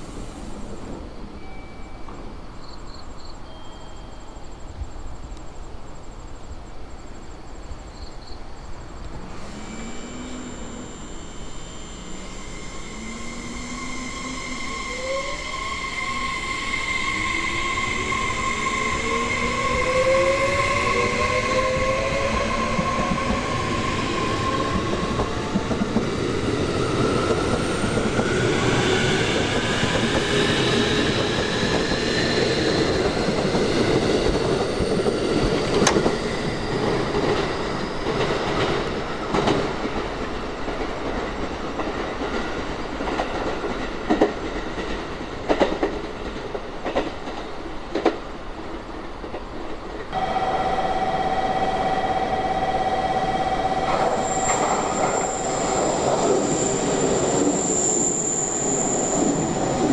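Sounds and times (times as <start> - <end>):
electric train motor whine: 9.1 - 30.2, 50.2 - 58.3
train wheels clacking: 24.4 - 48.3.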